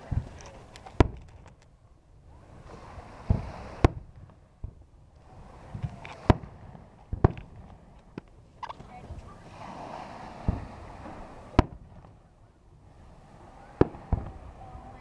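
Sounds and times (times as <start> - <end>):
fireworks booms and cracks: 0.0 - 1.5, 2.6 - 4.9, 5.5 - 8.3, 9.6 - 12.2, 13.7 - 14.6.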